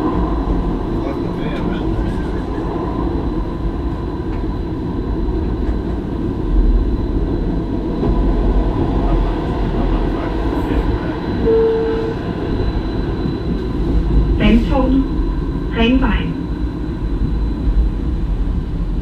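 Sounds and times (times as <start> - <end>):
tram rumbling along track: 0.0 - 19.0
short steady beep: 11.4 - 12.2.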